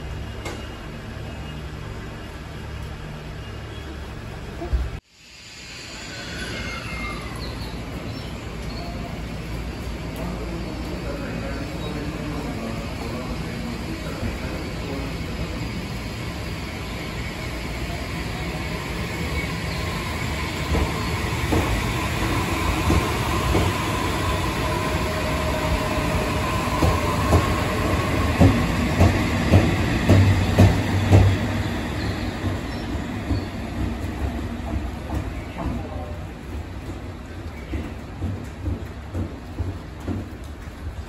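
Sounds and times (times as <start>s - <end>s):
electric train running: 7.9s - 37.0s.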